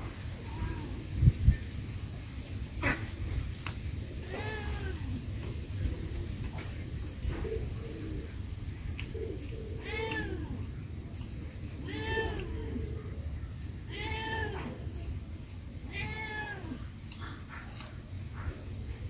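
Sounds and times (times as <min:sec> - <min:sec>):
cat meowing: 0:09.8 - 0:10.6, 0:13.9 - 0:14.8, 0:15.9 - 0:16.8.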